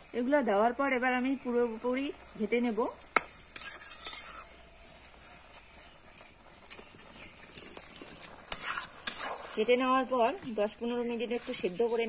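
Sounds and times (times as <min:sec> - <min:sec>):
faint sizzling hiss: 0:00.0 - 0:12.0
metal spatula scraping a pot: 0:03.4 - 0:12.0.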